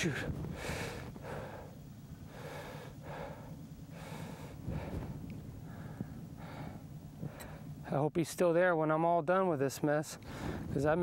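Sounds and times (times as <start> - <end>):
man breathing hard: 0.5 - 7.8, 10.2 - 10.7.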